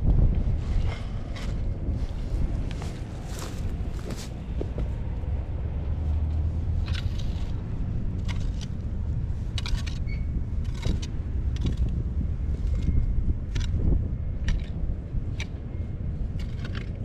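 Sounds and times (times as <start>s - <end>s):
low rumble: 0.0s - 17.0s
hoe scraping soil: 6.1s - 7.6s, 8.2s - 13.0s.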